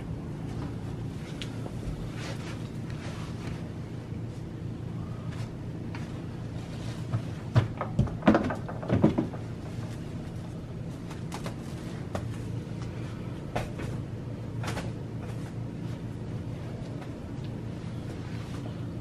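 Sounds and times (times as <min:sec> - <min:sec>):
steady low hum: 0:00.0 - 0:19.0
knocks bumps and rustles: 0:07.0 - 0:10.1.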